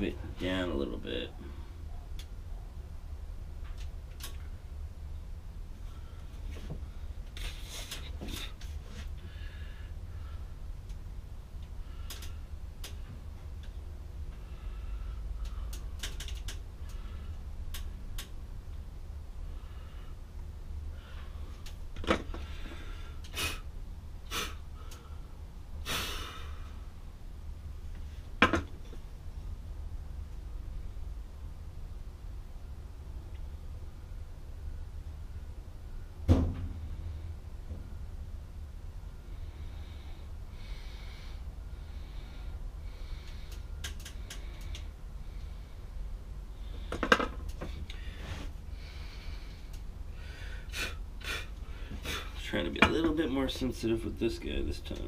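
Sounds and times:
steady low hum: 0.0s - 55.0s
man breathing through nose: 5.8s - 10.8s, 11.8s - 13.0s, 14.3s - 17.5s, 19.4s - 26.9s, 39.2s - 52.4s
puffs of breath blowing: 22.3s - 26.9s, 47.8s - 52.4s.

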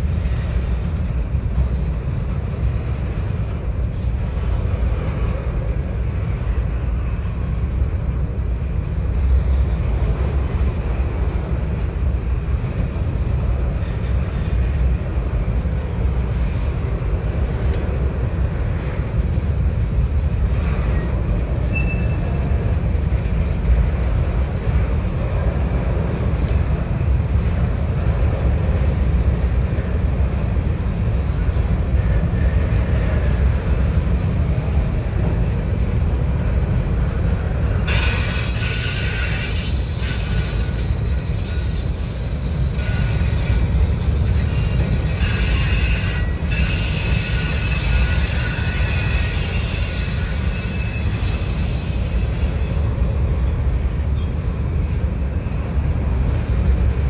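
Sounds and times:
train wheels rumbling on rails: 0.0s - 57.0s
steel wheels squealing: 20.6s - 22.4s, 33.8s - 34.4s, 37.8s - 54.3s.

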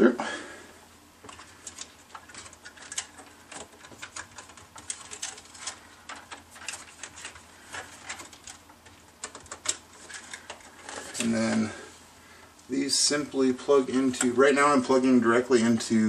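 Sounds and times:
cables clicking against plastic case: 1.2s - 11.7s.

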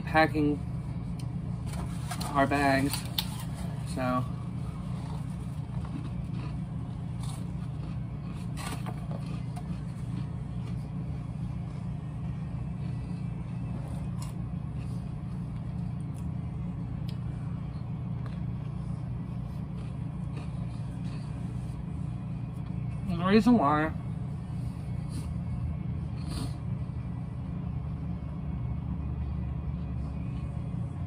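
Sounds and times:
steady low hum: 0.0s - 31.0s
person chewing food: 4.8s - 11.2s, 17.0s - 21.9s.

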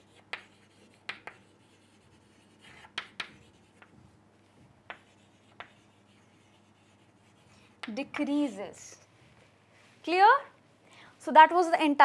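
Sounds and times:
chalk scratching on blackboard: 0.0s - 8.7s.

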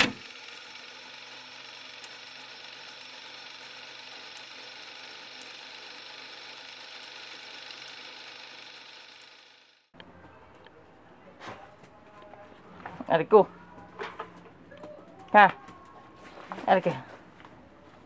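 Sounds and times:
film projector whirring: 0.0s - 10.0s.

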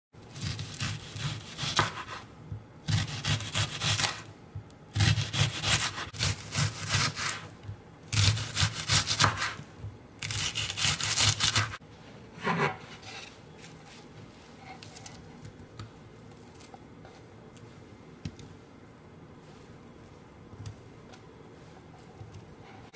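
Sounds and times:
knife slicing onion on wooden board: 0.3s - 2.3s, 2.9s - 4.2s, 4.9s - 7.5s, 8.1s - 11.8s.

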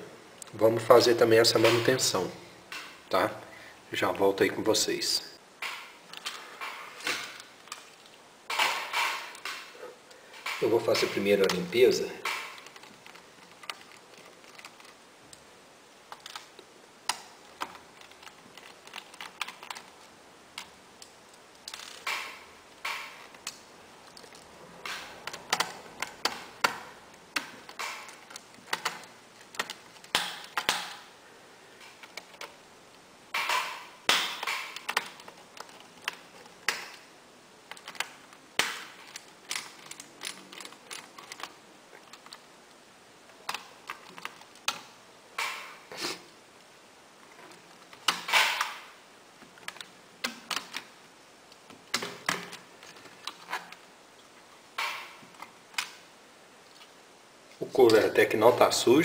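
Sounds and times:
scraping and handling small parts: 5.6s - 31.1s, 31.8s - 42.6s, 47.2s - 57.0s.

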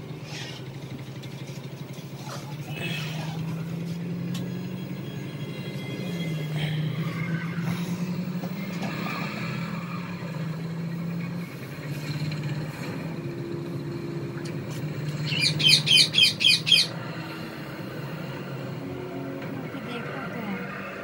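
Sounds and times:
small bird chirping: 15.0s - 17.0s.

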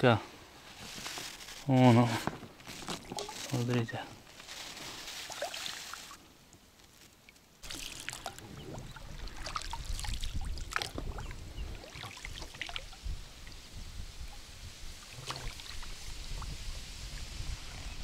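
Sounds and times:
water splashing against hull: 2.8s - 3.9s, 7.6s - 13.7s, 14.3s - 17.2s
wind rumble on microphone: 8.4s - 18.0s.

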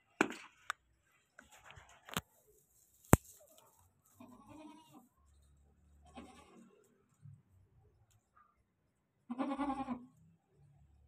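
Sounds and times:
goat bleating: 4.2s - 5.1s, 6.0s - 6.8s, 9.3s - 10.1s.

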